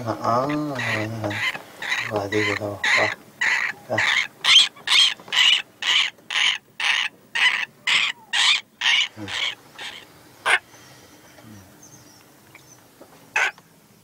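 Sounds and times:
chick rasping calls: 0.3 - 10.8, 13.3 - 13.6.

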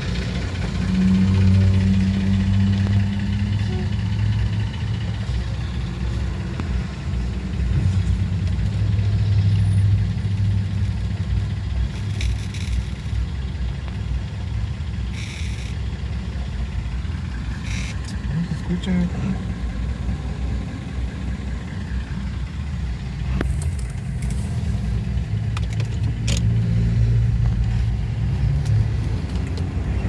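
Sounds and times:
idling engines in traffic: 0.0 - 30.0.

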